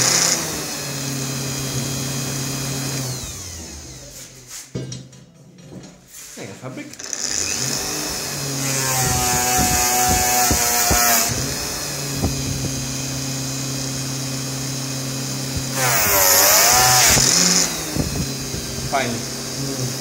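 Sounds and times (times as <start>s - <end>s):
polishing motor humming: 0.0s - 4.2s, 7.0s - 20.0s
fabric rasping on polishing wheel: 7.0s - 20.0s.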